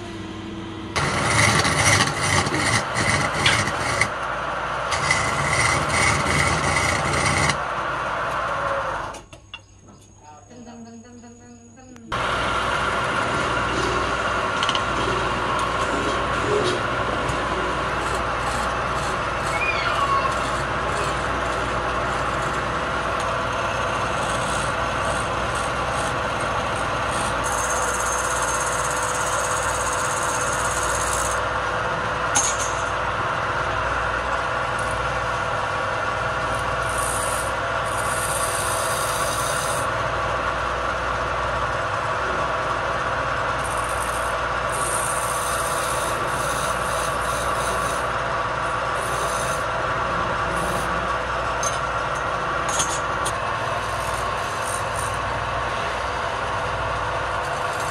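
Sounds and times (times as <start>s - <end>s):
wood lathe humming: 0.9s - 9.1s, 12.2s - 57.9s
scraper scraping spinning wood: 1.0s - 4.2s, 4.8s - 7.6s, 13.2s - 31.5s, 36.2s - 40.0s, 42.4s - 57.9s.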